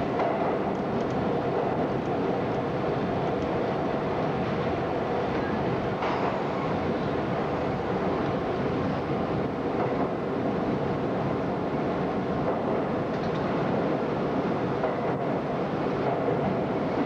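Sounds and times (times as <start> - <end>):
subway train wheels on rail: 0.0 - 17.0.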